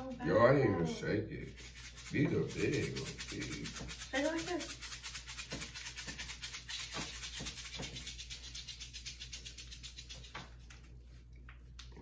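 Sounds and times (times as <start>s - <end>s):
candy rattling in shaken packet: 1.6s - 10.6s.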